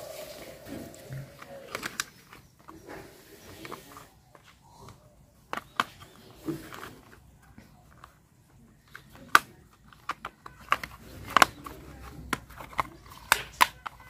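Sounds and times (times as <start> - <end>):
plastic toy parts clicking: 1.3 - 8.2, 8.8 - 14.0.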